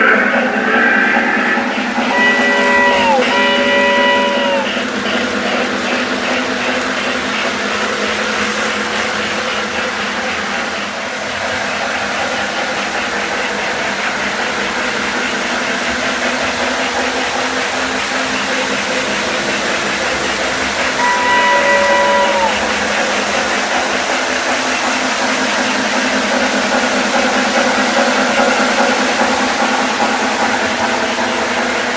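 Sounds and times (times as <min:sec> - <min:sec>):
model train motors humming: 0:00.0 - 0:31.9
steady signal tone: 0:02.1 - 0:04.8, 0:21.0 - 0:23.0
wheels clicking over track joints: 0:02.1 - 0:31.9.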